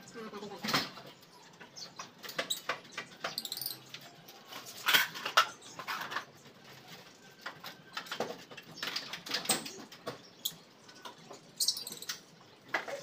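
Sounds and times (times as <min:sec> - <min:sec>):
small birds chirping: 0:00.0 - 0:13.0
metal screen door taps and clicks: 0:02.0 - 0:04.0.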